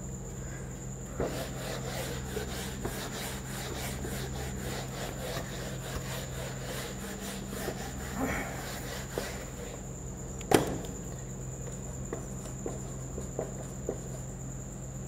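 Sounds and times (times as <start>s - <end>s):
duster rubbing on whiteboard: 1.1s - 10.0s, 12.1s - 14.4s.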